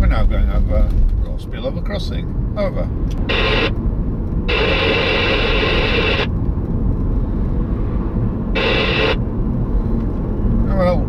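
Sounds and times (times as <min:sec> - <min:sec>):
car road noise: 0:00.0 - 0:11.0
person speaking over radio: 0:03.2 - 0:03.7, 0:04.5 - 0:06.3
radio static bursts: 0:03.2 - 0:03.8, 0:04.5 - 0:06.3, 0:08.5 - 0:09.2.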